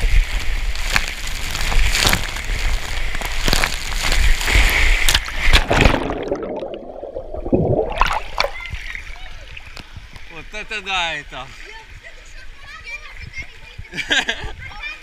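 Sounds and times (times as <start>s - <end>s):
water rushing down slide: 0.0s - 9.6s
water splashing into pool: 0.2s - 9.8s
muffled underwater bubbling: 5.5s - 9.7s.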